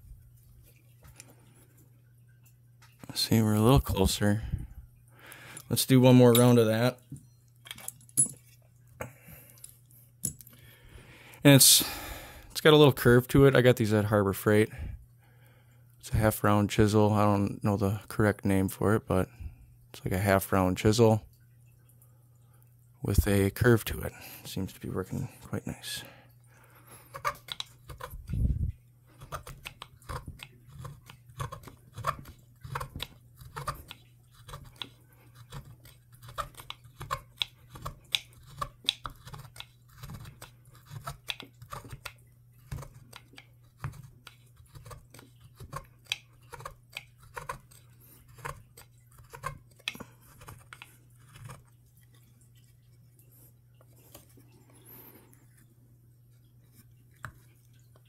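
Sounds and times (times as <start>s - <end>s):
gouge scraping wood: 27.1s - 28.2s, 29.2s - 52.7s.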